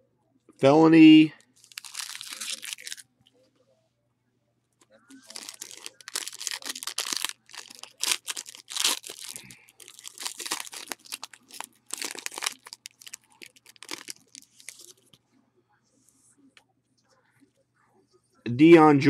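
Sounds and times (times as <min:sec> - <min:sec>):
foil wrappers ripping and crinkling: 0:01.6 - 0:03.0, 0:05.1 - 0:15.0.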